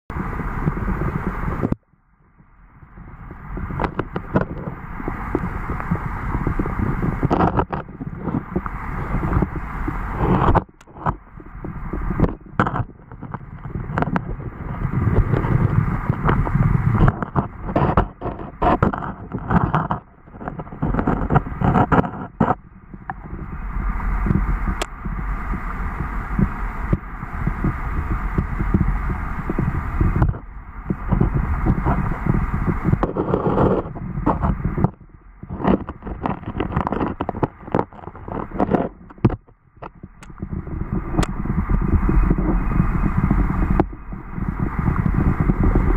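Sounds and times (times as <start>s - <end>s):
underwater stream rumble: 0.0s - 45.9s
sharp clicks and knocks: 7.2s - 9.5s, 10.2s - 23.4s, 29.5s - 42.4s.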